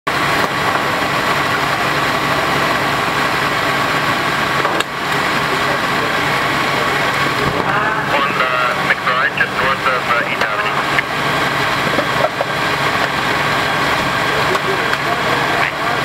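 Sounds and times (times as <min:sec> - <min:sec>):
constant high whine: 0:00.1 - 0:16.0
large vehicle engine idling: 0:00.1 - 0:16.0.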